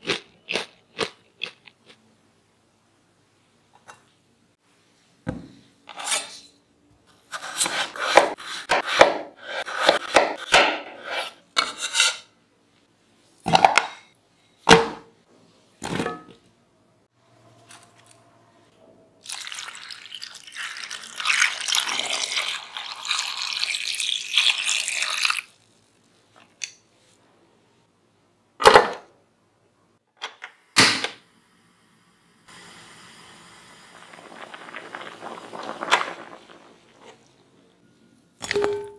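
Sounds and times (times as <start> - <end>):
low steady hiss: 2.0 - 5.8, 25.4 - 38.9
water poured into pot: 19.2 - 25.9, 33.2 - 37.4.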